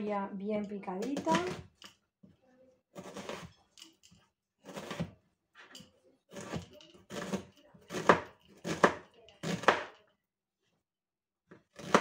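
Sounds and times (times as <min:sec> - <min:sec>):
knife chopping on cutting board: 0:06.3 - 0:10.0, 0:11.8 - 0:12.0.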